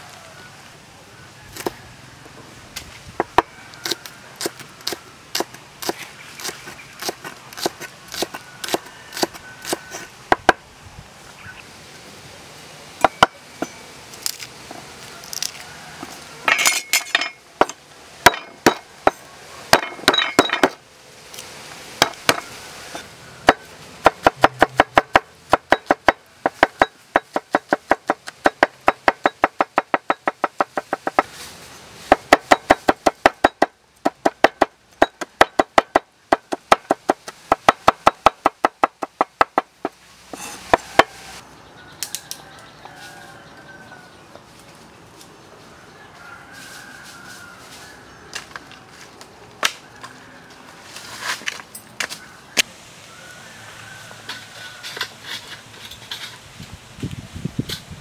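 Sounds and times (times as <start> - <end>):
papery crackling of garlic peeling: 14.1 - 16.3
cleaver chopping on wooden board: 23.5 - 31.3, 32.1 - 40.0.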